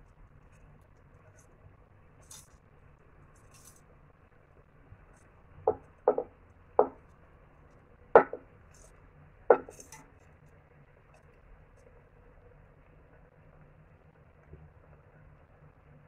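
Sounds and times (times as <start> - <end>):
glass plate clinking on metal pot: 8.2 - 8.4, 9.5 - 10.0.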